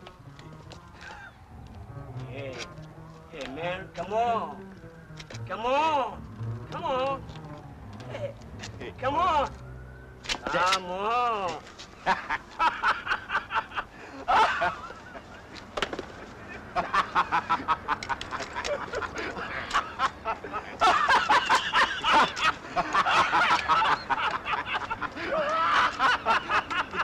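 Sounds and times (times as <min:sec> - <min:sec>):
laughing in bursts: 0:12.0 - 0:15.6, 0:16.2 - 0:27.0.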